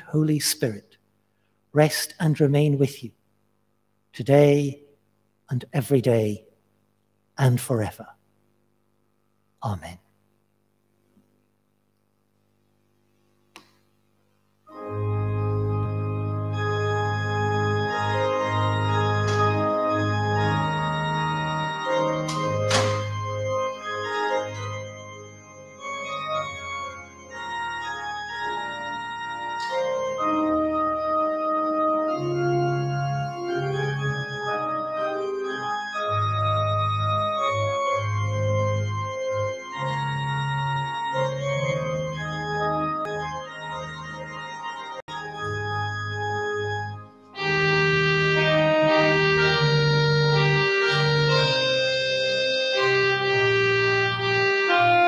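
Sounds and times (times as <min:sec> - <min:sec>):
church organ playing: 0:00.0 - 0:00.9, 0:01.8 - 0:03.1, 0:14.6 - 0:55.0.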